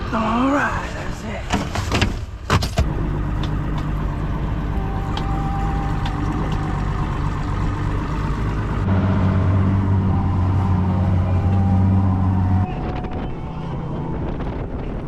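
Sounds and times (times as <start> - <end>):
outboard motor running: 2.8 - 15.0.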